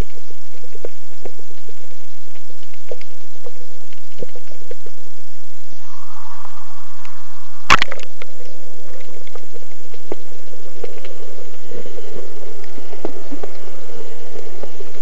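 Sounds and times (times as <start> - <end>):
crackling clicks: 0.0 - 5.8, 7.0 - 15.0
muffled underwater rush: 5.3 - 15.0.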